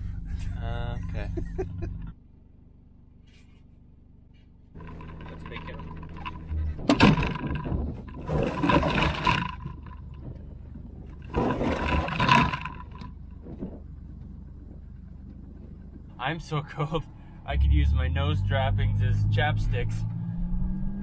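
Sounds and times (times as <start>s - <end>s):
engine idling: 0.0s - 20.0s
rough noisy scraping: 4.8s - 20.1s.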